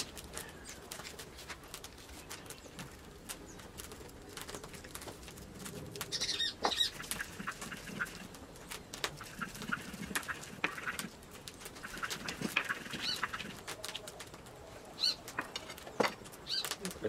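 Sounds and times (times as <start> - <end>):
bird chirping: 6.1 - 8.8, 11.6 - 14.0, 14.9 - 16.8.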